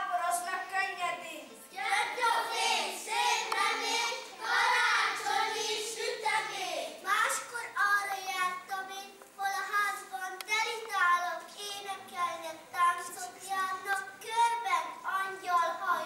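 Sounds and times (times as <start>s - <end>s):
young children singing: 1.8s - 7.0s.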